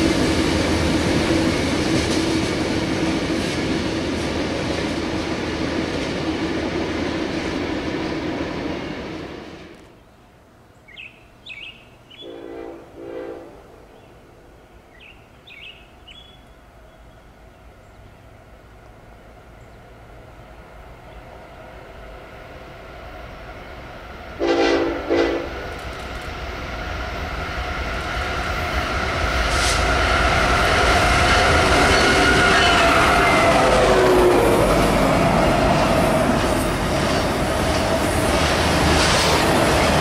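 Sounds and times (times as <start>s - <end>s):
diesel locomotive rumble: 0.0s - 10.0s, 16.8s - 40.0s
train air horn blasts: 12.2s - 13.9s, 24.4s - 25.7s, 31.3s - 35.0s.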